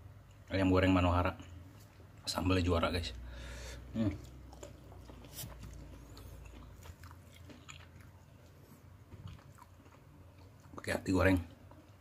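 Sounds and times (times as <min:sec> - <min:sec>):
person chewing: 0:03.6 - 0:12.0.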